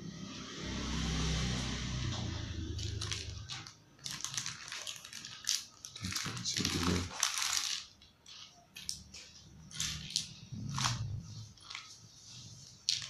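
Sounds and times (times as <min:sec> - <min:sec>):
plastic bag crinkling: 0:02.7 - 0:13.0.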